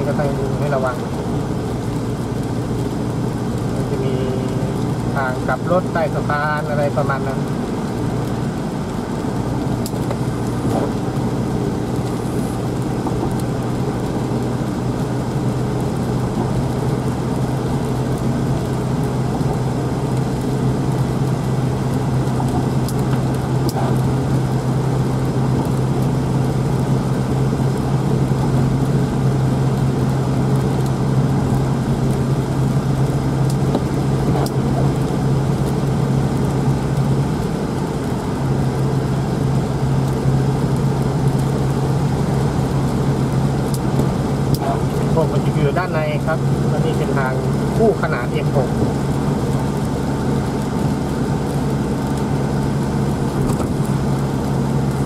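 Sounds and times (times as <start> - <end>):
car engine and tyre noise: 0.0 - 55.0.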